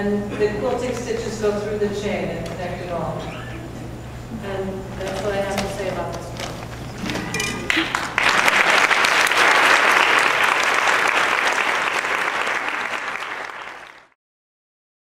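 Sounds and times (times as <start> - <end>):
audience applauding: 7.6 - 14.2.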